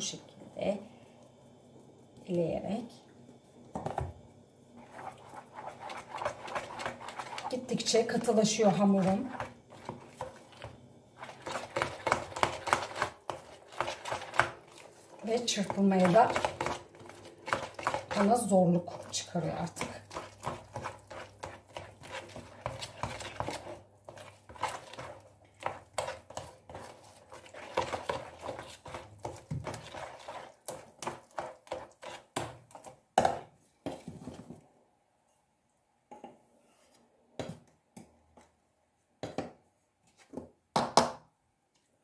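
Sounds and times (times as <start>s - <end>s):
whisk scraping plastic bowl: 4.8s - 32.9s.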